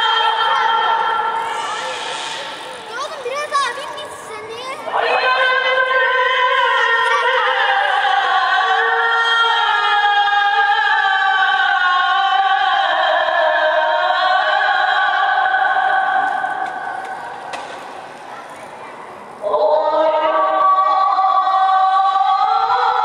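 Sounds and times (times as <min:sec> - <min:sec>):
muezzin chanting call to prayer: 0:00.0 - 0:17.5.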